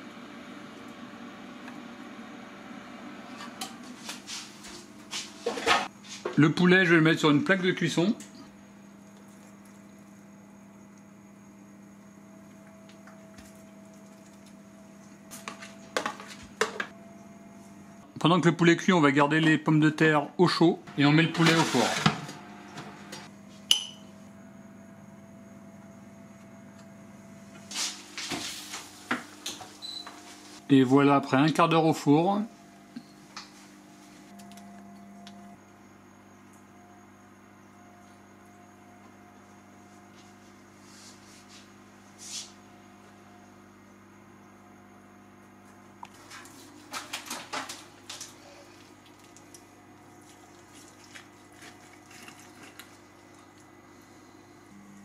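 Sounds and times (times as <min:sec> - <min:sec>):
faint steady hum: 0:22.3 - 0:55.0.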